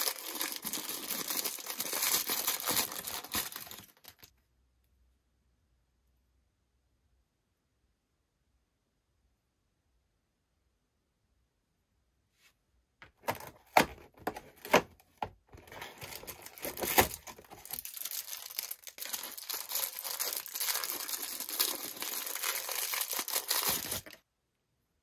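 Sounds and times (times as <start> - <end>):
cardboard ripping: 0.0 - 3.9, 15.6 - 24.2
tissue paper crinkling: 0.0 - 4.3, 15.6 - 24.2.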